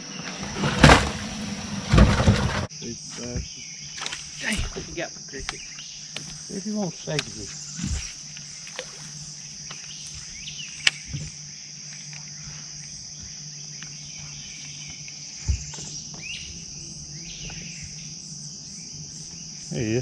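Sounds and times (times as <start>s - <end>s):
insect chorus drone: 0.0s - 20.0s
dull thump: 0.5s - 2.7s, 15.4s - 16.6s.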